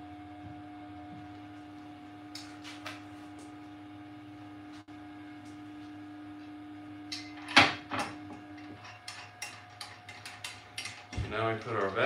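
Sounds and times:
printer motor humming: 10.7 - 12.0.

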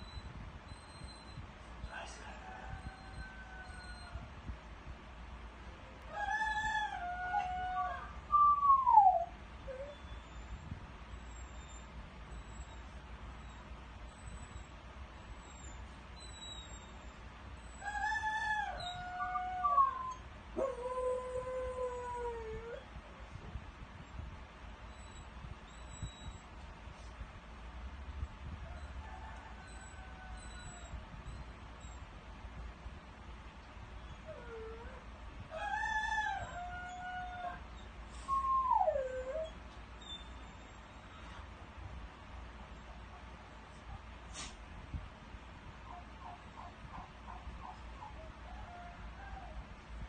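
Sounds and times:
dog howling call: 2.8 - 4.2, 6.1 - 10.1, 17.8 - 22.8, 34.2 - 40.2, 47.6 - 49.6.

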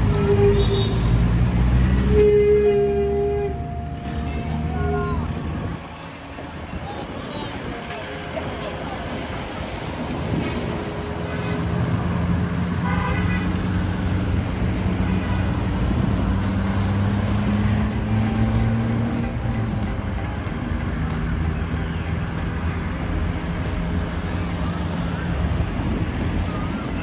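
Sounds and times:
car horn toot: 0.0 - 5.2, 12.8 - 13.6.

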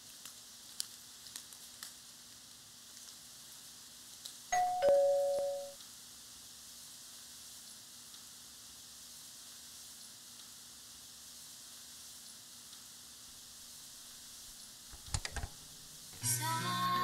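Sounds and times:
two-tone ding-dong door chime: 4.5 - 5.8.

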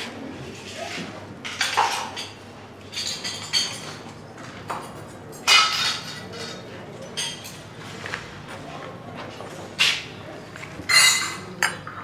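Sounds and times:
plates and cutlery clattering: 1.4 - 4.1, 4.7 - 7.7, 10.8 - 12.0.

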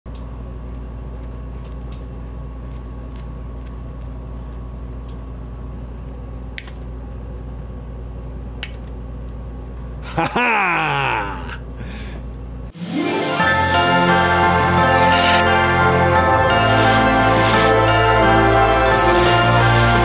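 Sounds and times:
low machine hum: 13.5 - 20.0.

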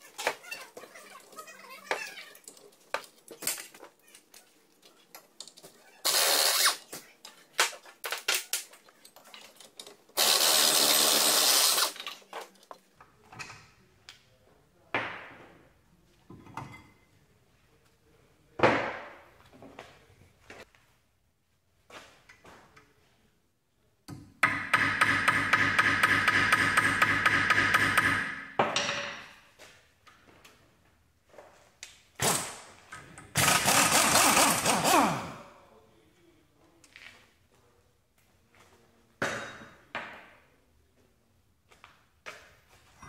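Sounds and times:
pneumatic impact wrench: 6.0 - 6.9, 10.2 - 12.1, 32.2 - 32.7, 33.4 - 35.4.

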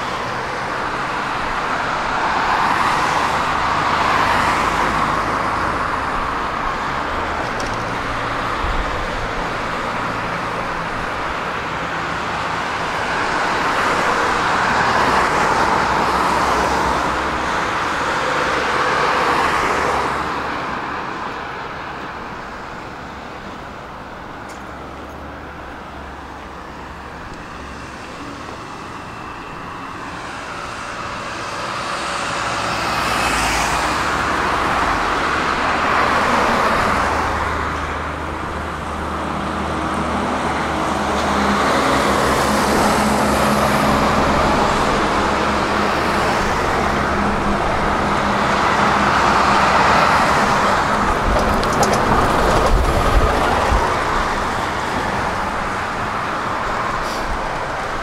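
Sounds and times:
cars passing: 0.0 - 58.0
truck engine drone: 21.8 - 58.0.

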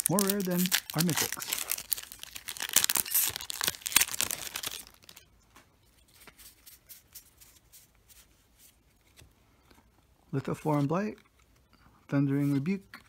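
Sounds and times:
foil wrapper crinkling: 0.0 - 5.3.

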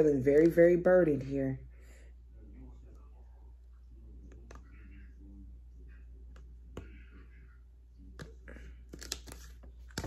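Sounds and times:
low steady hum: 0.0 - 10.0
cards clicking and tapping: 8.1 - 10.0.

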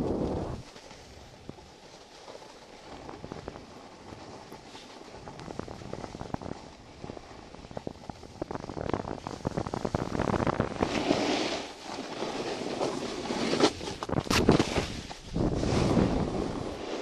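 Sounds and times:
wind on microphone: 0.0 - 1.7, 2.9 - 11.2, 13.7 - 17.0
snowboard scraping on snow: 0.0 - 17.0.

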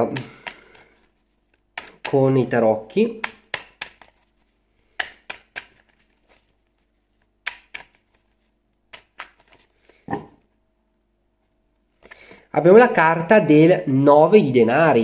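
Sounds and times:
cards shuffling: 0.0 - 10.0.

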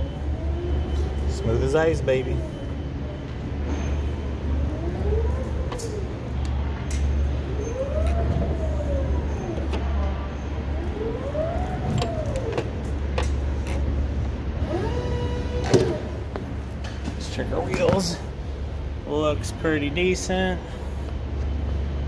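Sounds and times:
steady low hum: 0.0 - 22.0
electric motor whining: 14.6 - 16.2.

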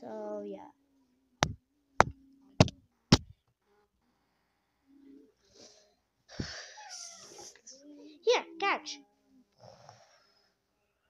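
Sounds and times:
sharp knocks: 1.4 - 3.3.

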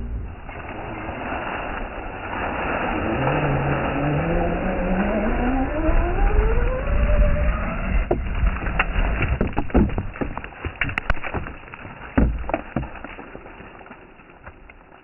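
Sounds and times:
rc truck rumble: 0.0 - 15.0
stones clicking and knocking: 8.1 - 15.0.

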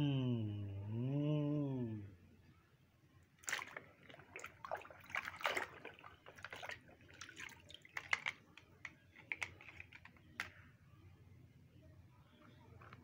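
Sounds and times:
water splashing in a bucket: 3.4 - 8.4.

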